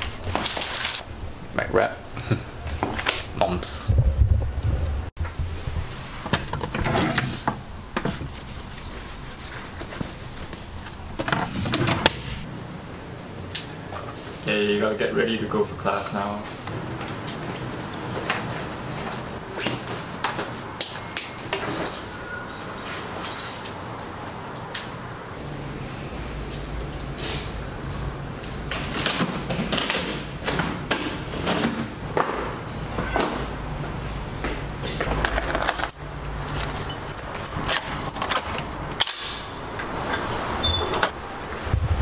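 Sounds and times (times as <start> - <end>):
keys jangling: 17.2 - 20.4, 21.6 - 24.7, 35.3 - 39.1, 41.0 - 42.0.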